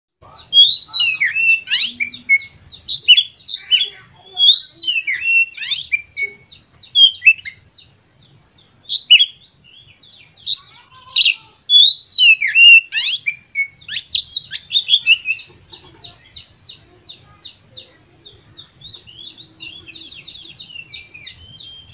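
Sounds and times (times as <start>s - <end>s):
bird singing whistled song: 0.5s - 7.9s, 8.8s - 15.5s, 18.5s - 21.9s.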